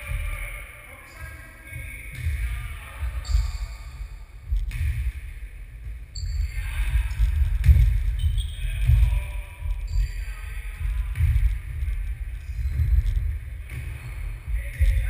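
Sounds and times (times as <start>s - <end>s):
steady low rumble: 0.0s - 15.0s
ball bouncing on wooden floor: 2.1s - 3.7s, 4.4s - 9.9s, 10.7s - 15.0s
sharp thuds: 4.4s - 9.9s, 10.8s - 15.0s.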